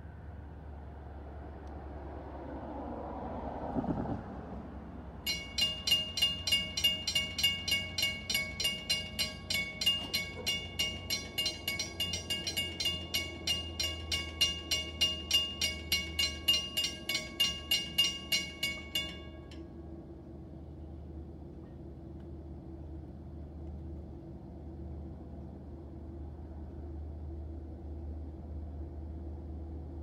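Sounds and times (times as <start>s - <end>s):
train rushing by: 1.8s - 20.0s
railroad crossing bell ringing: 5.2s - 20.5s.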